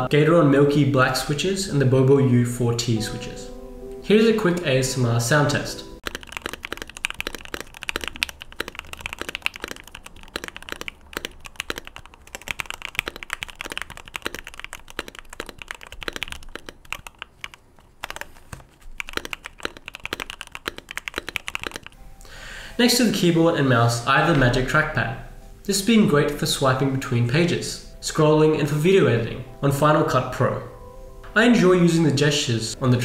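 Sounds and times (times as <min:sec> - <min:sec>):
mechanical keyboard typing: 0:06.0 - 0:22.0.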